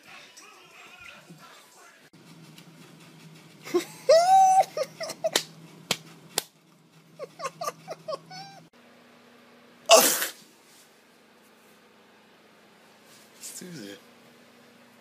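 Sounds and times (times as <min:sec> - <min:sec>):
man's high-pitched wheezing laugh: 0:03.7 - 0:05.4, 0:07.2 - 0:08.7.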